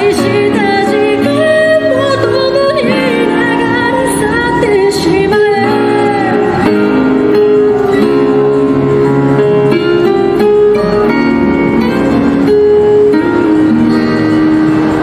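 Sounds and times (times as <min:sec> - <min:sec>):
woman singing into microphone: 0:00.0 - 0:07.2
instrumental backing music: 0:00.0 - 0:15.0.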